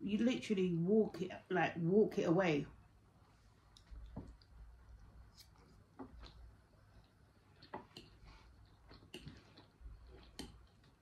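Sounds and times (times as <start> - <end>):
quiet chewing: 3.3 - 11.0.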